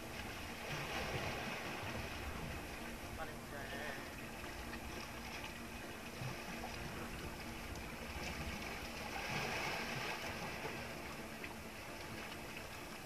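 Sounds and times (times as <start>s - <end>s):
steady wind: 0.0s - 13.0s
water washing against hull: 0.0s - 13.0s.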